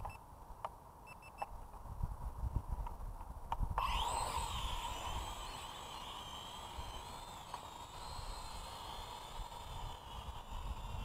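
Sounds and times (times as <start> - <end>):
drone propellers whining: 3.8 - 11.0.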